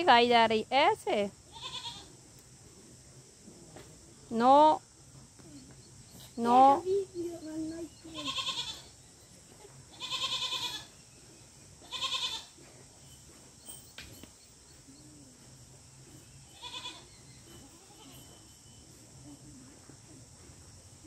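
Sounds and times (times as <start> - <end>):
animal bleating: 1.5 - 2.1, 8.0 - 11.0, 11.8 - 12.6, 16.5 - 18.3.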